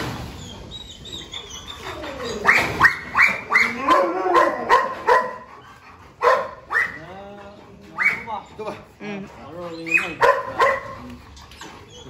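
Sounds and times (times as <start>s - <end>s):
dog barking: 2.8s - 5.5s, 6.2s - 7.0s, 10.1s - 11.1s.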